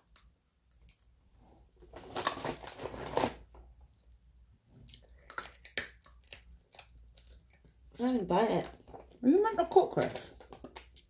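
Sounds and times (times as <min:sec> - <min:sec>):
teeth crunching hard snack: 0:04.9 - 0:08.0.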